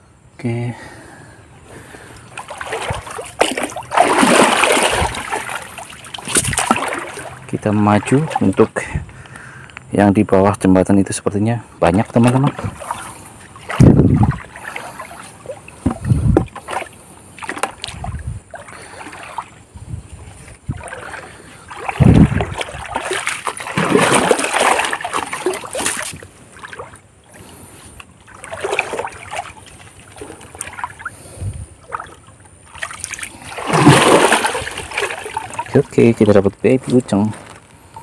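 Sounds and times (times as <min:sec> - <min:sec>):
water splashing and sloshing: 0:01.7 - 0:09.5, 0:11.8 - 0:38.0
dull low thuds: 0:13.7 - 0:14.5, 0:15.8 - 0:16.6, 0:21.9 - 0:23.0.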